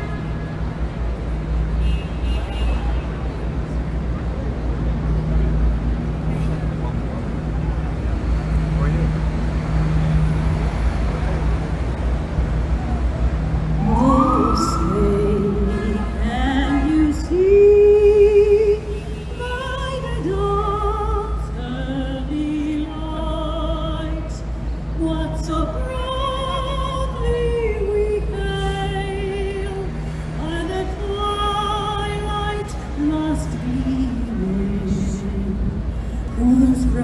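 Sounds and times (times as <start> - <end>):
woman singing operatically: 13.8 - 37.0.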